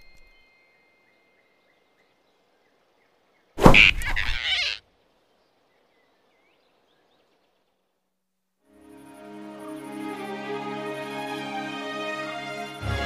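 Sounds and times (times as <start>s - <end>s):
cartoon thump: 3.6s - 4.4s.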